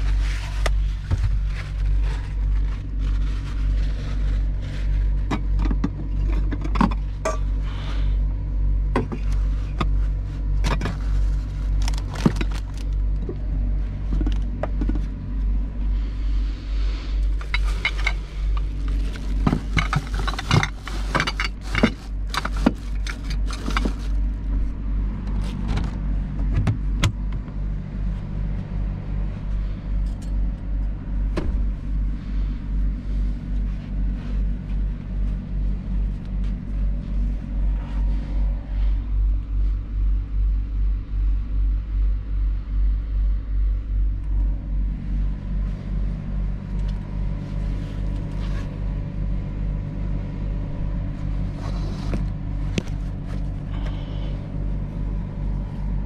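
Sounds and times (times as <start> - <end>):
diesel engine idling: 0.0 - 56.0
plastic bag crinkling: 11.7 - 12.9, 17.4 - 24.3.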